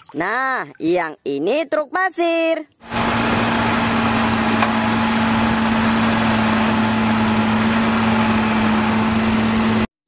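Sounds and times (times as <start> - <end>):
diesel truck engine running: 2.8 - 9.9.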